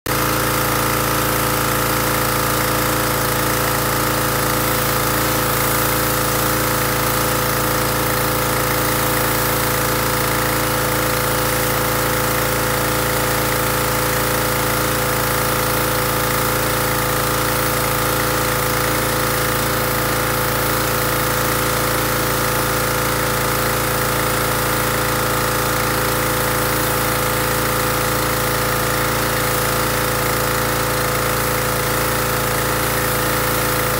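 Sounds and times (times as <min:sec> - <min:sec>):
pressure washer motor running: 0:00.1 - 0:33.9
water jet hissing: 0:00.5 - 0:21.8, 0:31.5 - 0:33.9.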